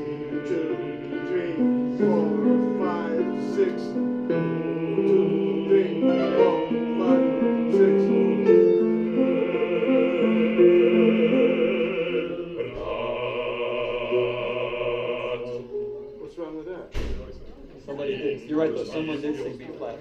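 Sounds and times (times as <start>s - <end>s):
mixed choir singing: 0.0s - 16.0s.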